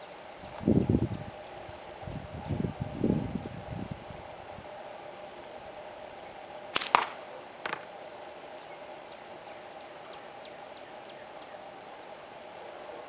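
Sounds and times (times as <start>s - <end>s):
steady hum: 0.0s - 13.0s
slingshot band crack: 6.7s - 7.9s.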